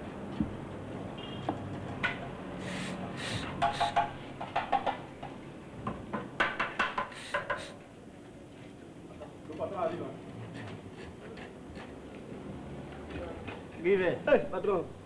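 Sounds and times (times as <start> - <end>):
metallic clanks and taps: 3.6 - 5.4.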